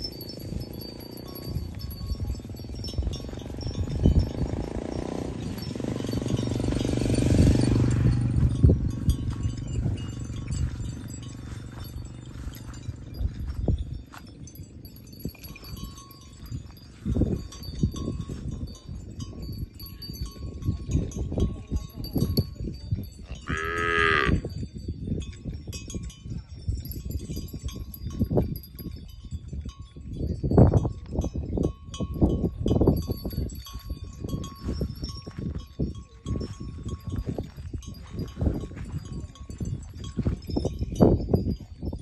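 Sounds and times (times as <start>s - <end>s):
cow mooing: 23.4s - 24.4s.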